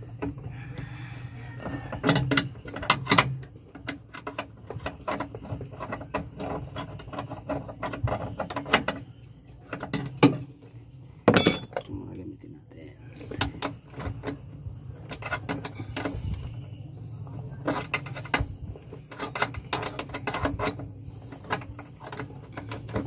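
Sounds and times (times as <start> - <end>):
hand tools clanking on metal: 11.2 - 12.0.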